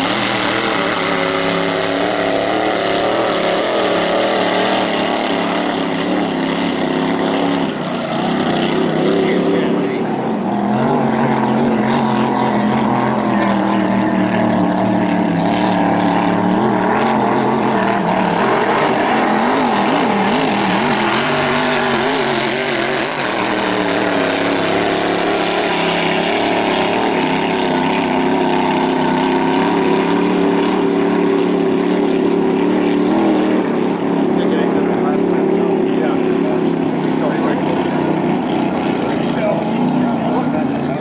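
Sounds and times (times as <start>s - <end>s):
racing boat engines droning: 0.0s - 41.0s.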